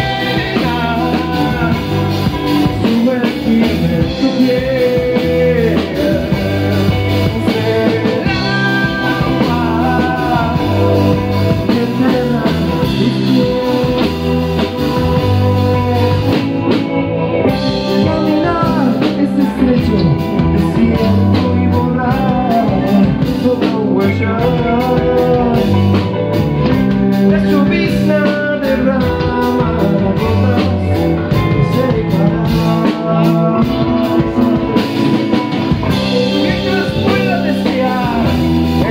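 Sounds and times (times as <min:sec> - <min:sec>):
live rock band playing: 0:00.0 - 0:38.9
man singing: 0:00.0 - 0:38.9.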